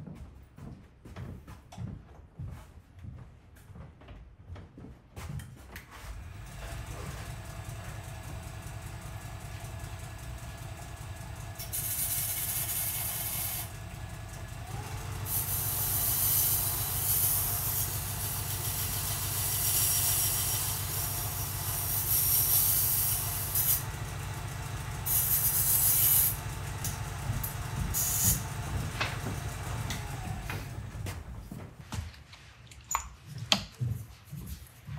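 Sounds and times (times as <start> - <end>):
belt grinder motor: 6.3 - 31.0
belt grinder grinding metal: 6.5 - 23.9, 25.0 - 30.8.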